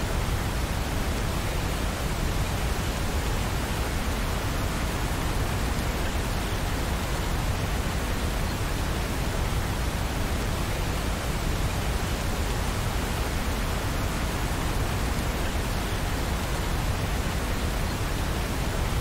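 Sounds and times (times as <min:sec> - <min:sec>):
steady rain: 0:00.0 - 0:19.0.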